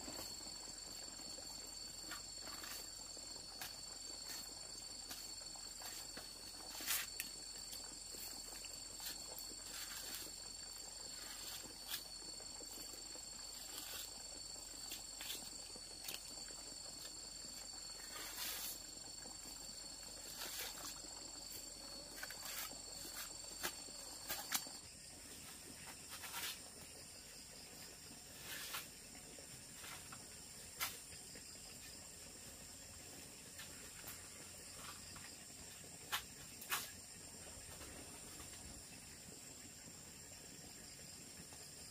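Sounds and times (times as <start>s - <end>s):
insects calling in high tones: 0.0s - 29.0s.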